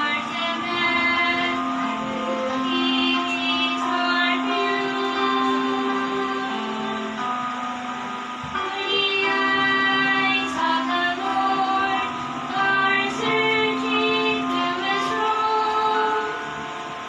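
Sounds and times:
young women singing gospel duet: 0:00.0 - 0:07.4, 0:08.5 - 0:16.8.

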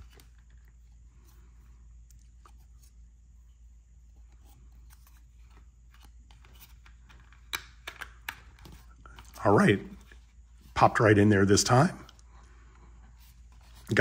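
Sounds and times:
plastic handling noises: 0:00.0 - 0:01.3.

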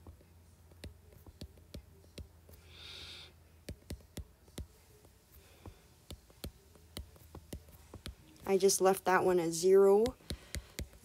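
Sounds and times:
stylus tapping on glass screen: 0:00.0 - 0:02.6, 0:03.6 - 0:08.5, 0:09.8 - 0:11.0
low steady hum: 0:00.0 - 0:11.0.

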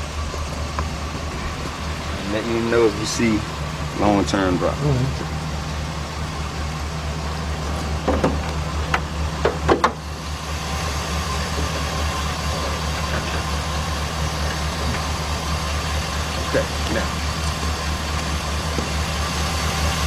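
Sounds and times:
van engine idling rough: 0:00.0 - 0:20.0
short knocks and clatters: 0:08.0 - 0:10.0.

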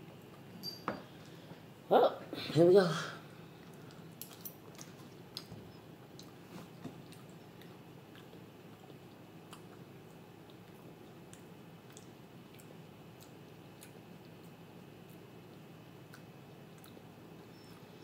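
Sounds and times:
low room hum: 0:00.0 - 0:18.0
person chewing: 0:03.6 - 0:17.8.

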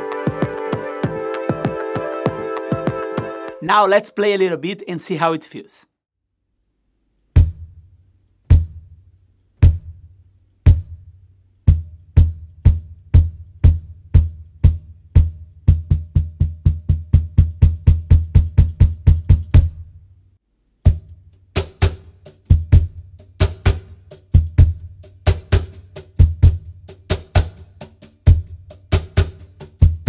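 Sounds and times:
cajon bass hits: 0:11.7 - 0:19.8.

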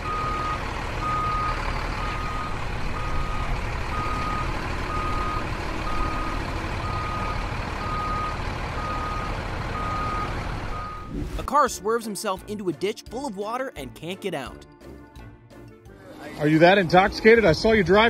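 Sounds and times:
car driving: 0:00.0 - 0:11.6
short electronic beeps: 0:07.9 - 0:11.5.

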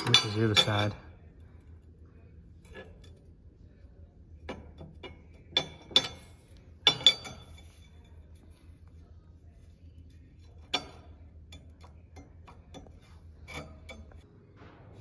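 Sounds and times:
metal straight edge clinking: 0:00.0 - 0:01.0, 0:04.5 - 0:08.1, 0:10.5 - 0:14.2.

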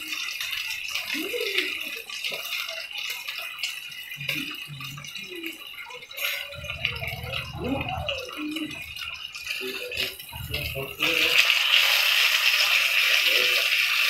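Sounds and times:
steaks sizzling in a pan: 0:00.0 - 0:14.0
low hum: 0:06.6 - 0:11.1.

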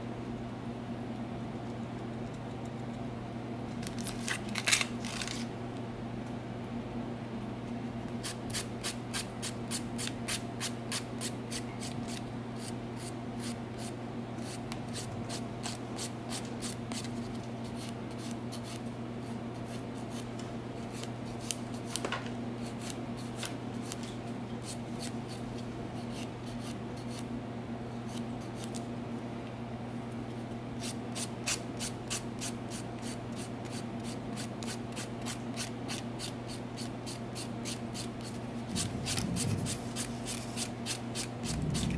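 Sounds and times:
nail file rasping: 0:30.8 - 0:41.9
low hum: 0:38.6 - 0:40.7, 0:41.4 - 0:41.9.

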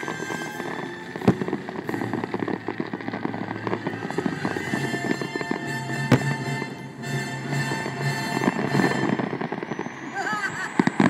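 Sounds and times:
fireworks bursting and crackling: 0:00.0 - 0:11.0.

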